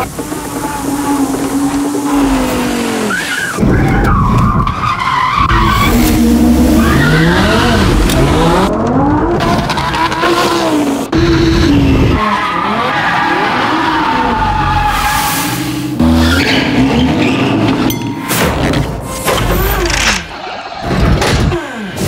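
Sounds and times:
tires squealing on pavement: 0.0 - 17.9
car engine revving hard: 5.5 - 12.9.

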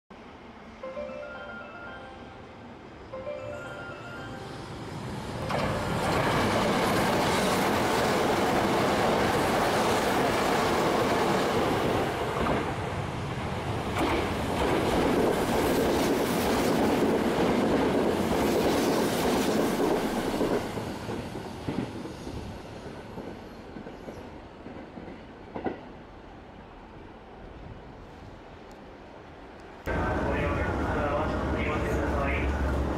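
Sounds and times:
electric train passing: 0.2 - 32.9.

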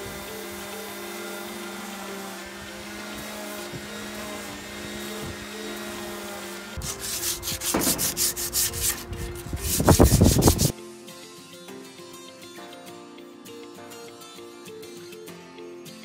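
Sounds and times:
electric orbital sander humming: 0.0 - 10.7
sandpaper rubbing on wood: 0.0 - 10.7.

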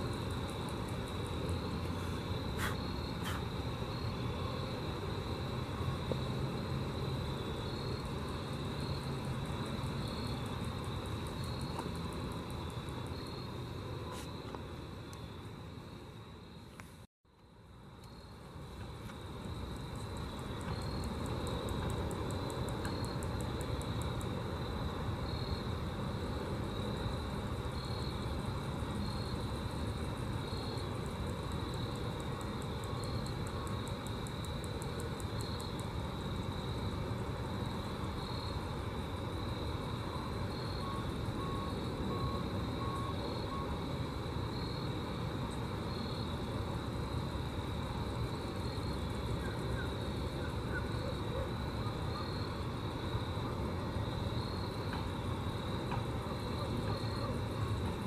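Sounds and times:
grasshoppers stridulating: 0.0 - 58.0.

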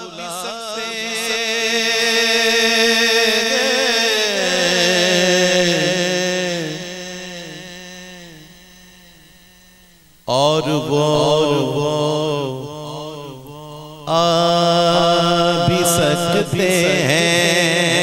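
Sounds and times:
man singing into a microphone: 0.0 - 9.2, 10.3 - 18.0.

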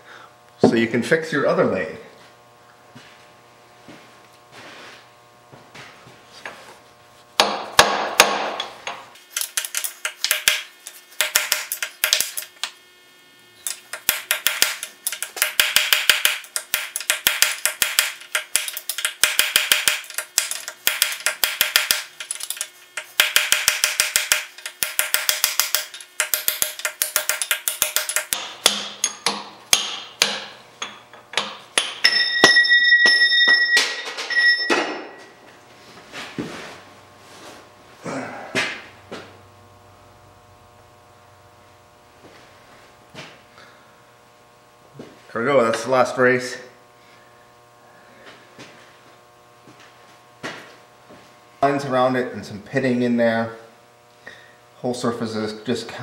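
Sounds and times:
hammer tapping steel punch: 7.4 - 12.4, 13.7 - 34.0.

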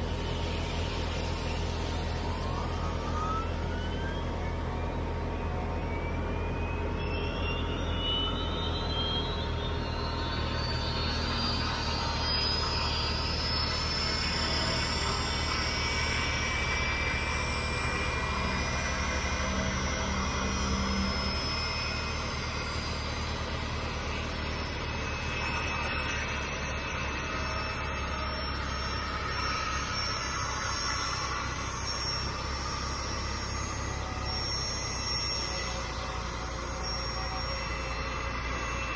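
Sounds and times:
jet engine turbine whine: 0.0 - 38.9.

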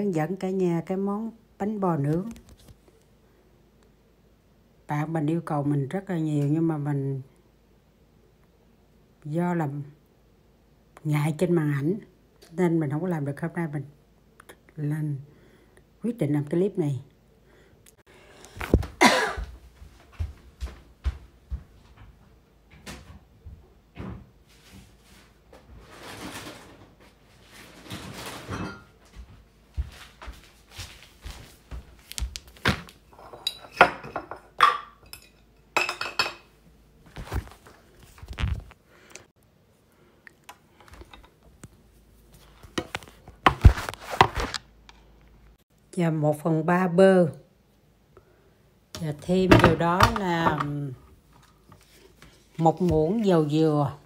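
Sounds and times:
rustling of things handled: 18.4 - 33.8, 37.0 - 39.3, 40.6 - 45.6, 49.0 - 53.9.

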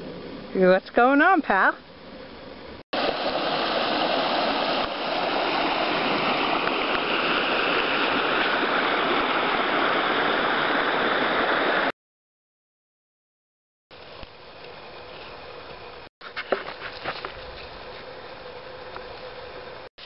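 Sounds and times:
stream rushing over rocks: 3.0 - 11.9.

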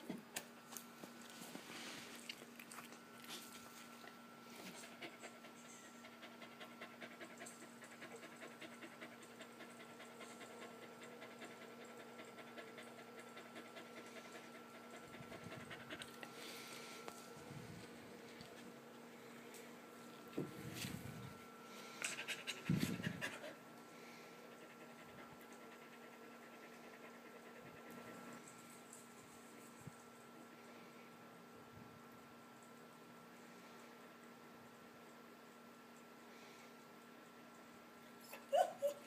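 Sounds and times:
dog panting: 4.6 - 16.7, 22.0 - 23.6.

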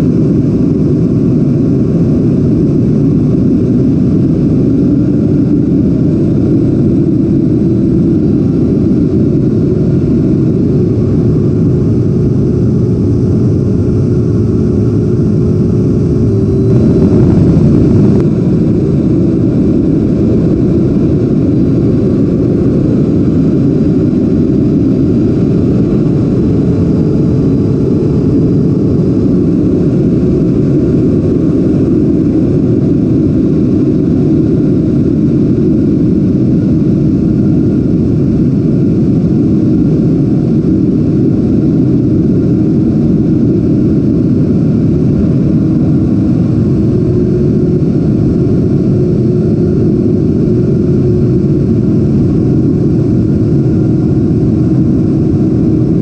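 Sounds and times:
ducted fan jet rushing: 0.0 - 56.0.

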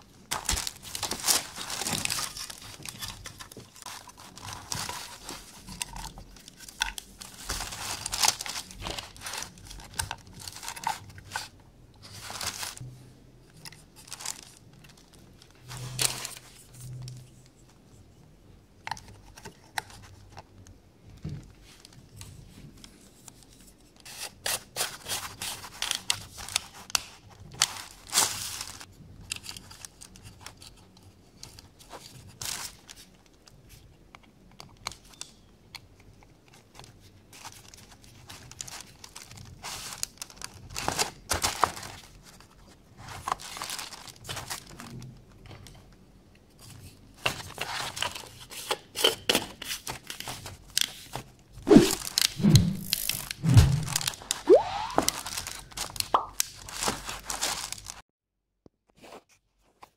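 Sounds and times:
plastic and metal parts handled: 0.2 - 12.8, 55.0 - 58.0.

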